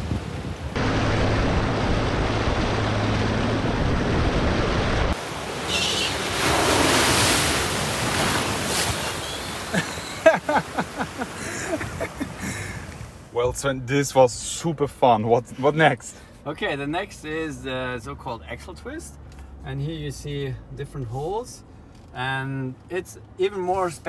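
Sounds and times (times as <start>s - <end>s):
water rushing and splashing: 0.0s - 13.3s
low engine hum: 0.6s - 5.2s.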